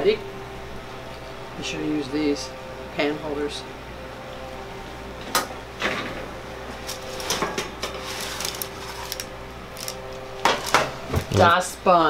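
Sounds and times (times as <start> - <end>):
oven door opening: 5.2 - 11.6
baking sheet sliding on oven rack: 6.8 - 10.9.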